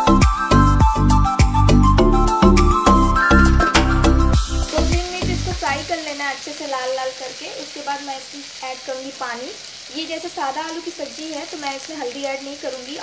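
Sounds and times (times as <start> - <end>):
potatoes sizzling in oil: 3.3 - 13.0.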